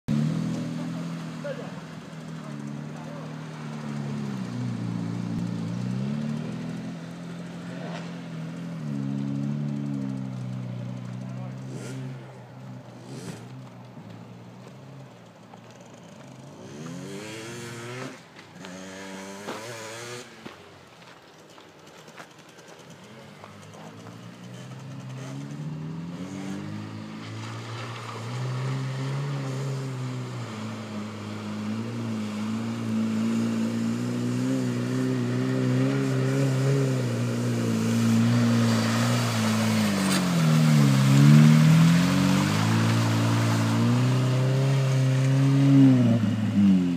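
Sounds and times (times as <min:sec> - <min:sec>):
off-road vehicle engine revving: 0:00.0 - 0:46.9
hiss of water and mud: 0:35.6 - 0:46.7.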